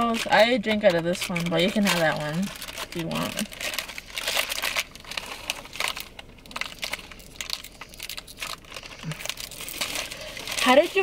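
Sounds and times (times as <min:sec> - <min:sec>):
plastic packets crinkling: 0:00.0 - 0:11.0.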